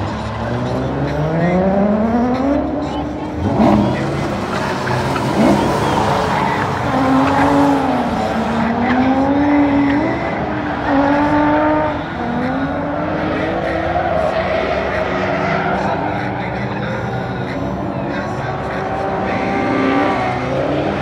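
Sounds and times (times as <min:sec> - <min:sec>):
car engine revving hard: 0:00.0 - 0:21.0
tires squealing: 0:00.0 - 0:21.0.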